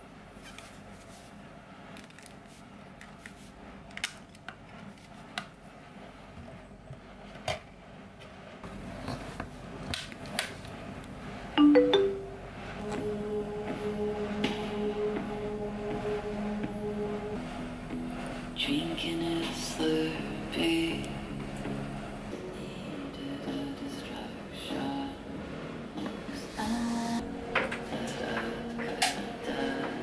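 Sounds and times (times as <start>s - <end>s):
electronic three-tone chime: 11.6s - 12.5s
soft music: 11.6s - 30.0s.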